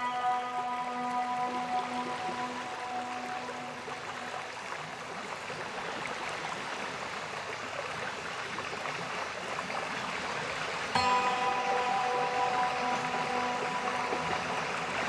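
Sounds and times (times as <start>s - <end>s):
steady music tones: 0.0s - 4.5s, 11.0s - 15.0s.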